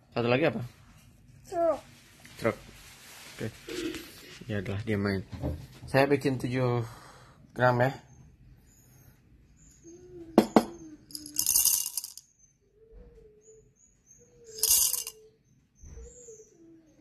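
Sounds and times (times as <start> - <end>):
coffee beans rattling into cup: 11.1 - 12.2, 14.5 - 15.2.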